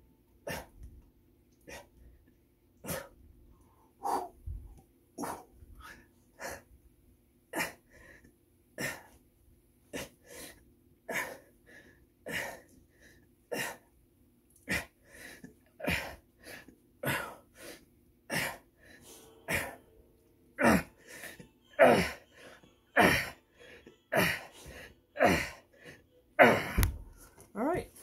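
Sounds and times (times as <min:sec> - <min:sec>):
man breathing hard: 0:03.8 - 0:06.7.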